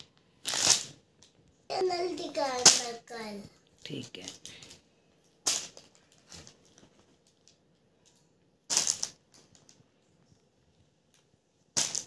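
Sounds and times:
plastic bag crinkling: 0.4s - 1.4s.

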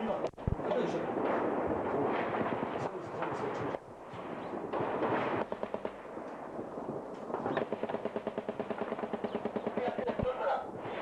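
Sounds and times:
automatic gunfire: 4.7s - 6.1s, 7.3s - 10.1s.

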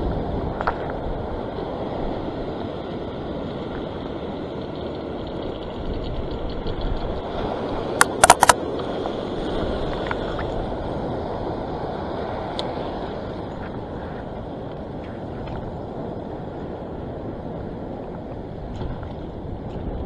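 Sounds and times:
surf washing over rocks: 7.2s - 20.0s
sharp clicks: 8.0s - 8.6s.

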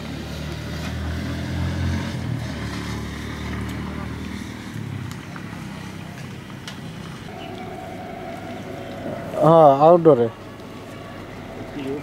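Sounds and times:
motor engine humming: 7.0s - 12.0s
people talking indistinctly: 7.3s - 12.0s.

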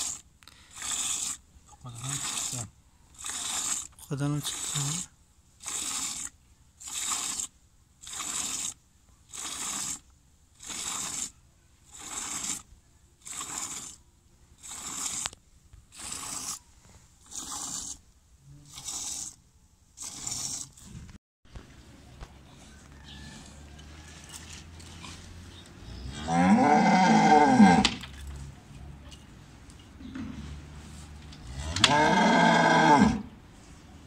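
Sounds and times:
milk squirting into pail: 0.0s - 5.0s, 5.6s - 10.0s, 10.6s - 11.3s, 11.9s - 14.0s, 14.6s - 16.6s, 17.2s - 18.0s, 18.7s - 19.4s, 20.0s - 20.9s.

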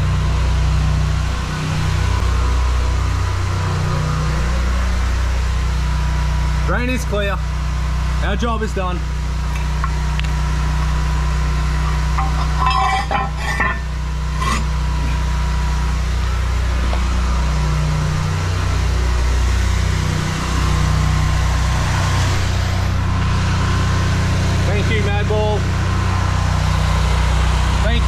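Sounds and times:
engine idling: 0.0s - 28.0s
metal drain grate clanking: 12.0s - 15.2s.

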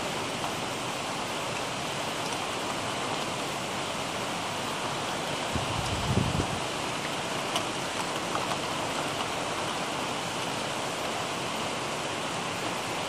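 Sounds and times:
heavy rain hissing: 0.0s - 13.0s
raindrop ticks: 1.5s - 3.4s, 7.0s - 11.2s.

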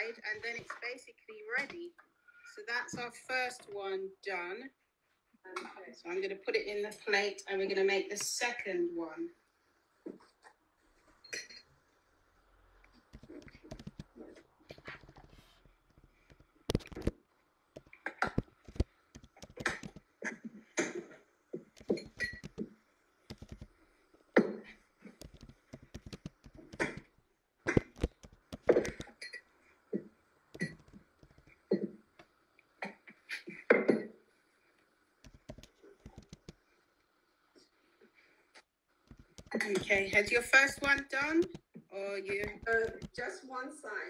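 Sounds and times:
hands patting dough: 13.0s - 17.2s, 17.8s - 20.1s, 21.6s - 23.8s, 25.0s - 27.1s, 27.7s - 29.4s, 30.5s - 31.9s, 35.2s - 36.6s, 39.1s - 43.3s.

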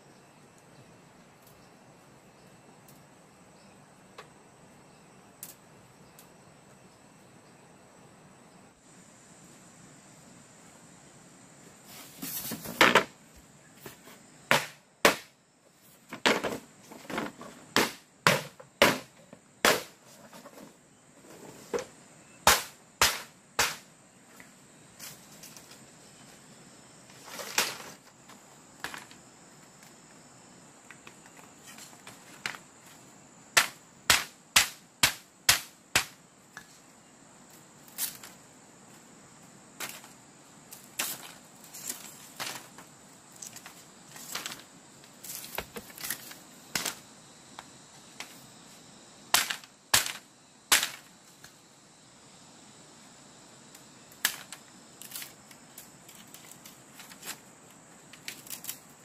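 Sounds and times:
bamboo cracking and knocking: 16.1s - 20.8s, 39.8s - 47.0s, 49.3s - 51.6s, 54.1s - 57.4s, 58.1s - 58.9s.

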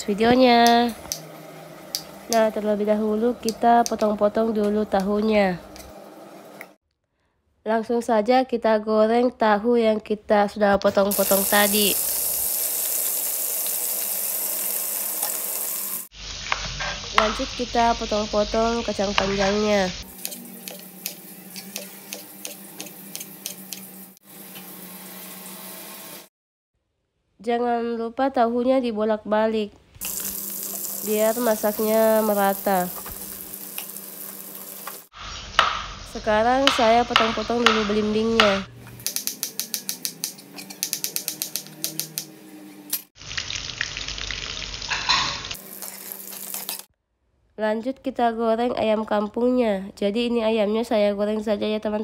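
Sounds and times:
tofu sizzling in hot oil: 11.1s - 23.8s, 30.0s - 36.0s, 43.2s - 46.9s
knife chopping on plastic board: 36.7s - 38.6s
knife chopping on cutting board: 36.7s - 42.2s.

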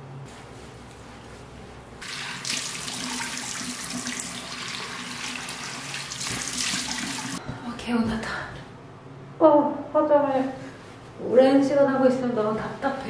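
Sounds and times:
sink tap running: 2.0s - 7.4s.

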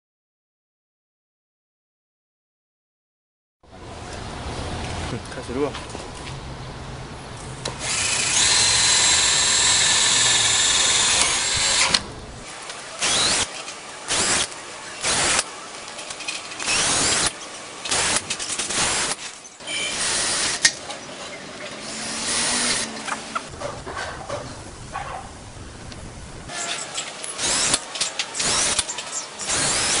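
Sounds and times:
cordless drill whining: 7.7s - 12.1s, 13.0s - 13.5s, 14.1s - 15.4s, 16.6s - 20.7s, 21.8s - 22.9s, 27.2s - 30.0s.

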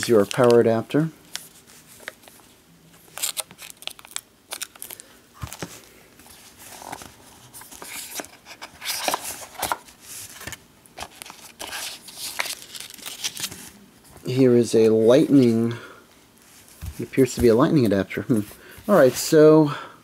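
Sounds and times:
plastic wrap crinkling: 0.0s - 2.4s, 3.0s - 13.8s.

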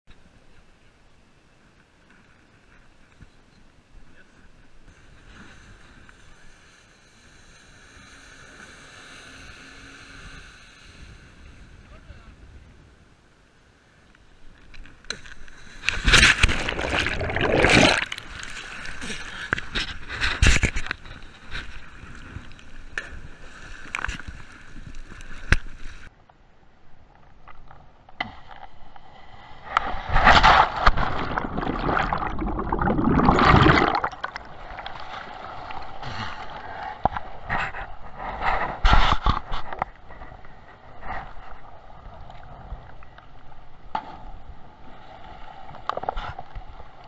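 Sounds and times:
sea water splashing: 15.6s - 26.1s, 30.0s - 36.0s.

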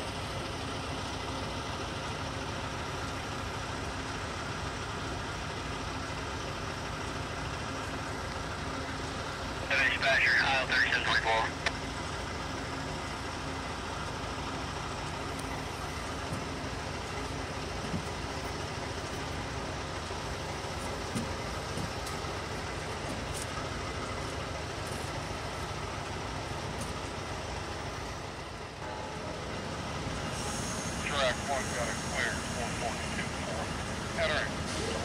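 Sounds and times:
diesel locomotive idling: 0.0s - 35.0s.

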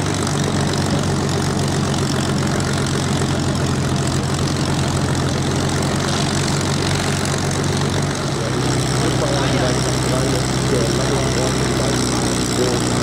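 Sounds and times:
propeller plane engine idling: 0.0s - 13.0s.

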